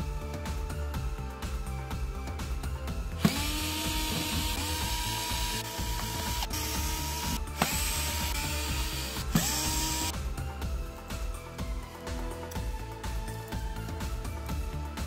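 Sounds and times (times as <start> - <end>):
electric screwdriver whining: 3.2 - 10.2.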